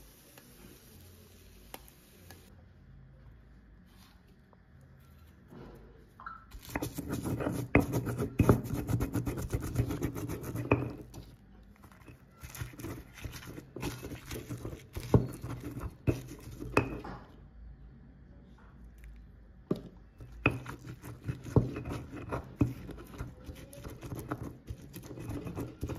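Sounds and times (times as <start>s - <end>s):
stone pestle pounding and grinding: 6.5s - 11.3s, 11.9s - 17.2s, 19.7s - 25.9s.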